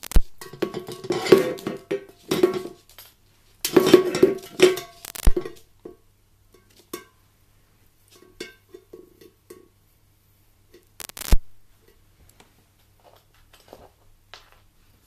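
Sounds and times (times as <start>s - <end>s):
metal can clattering on wood: 0.4s - 2.9s, 3.6s - 5.6s.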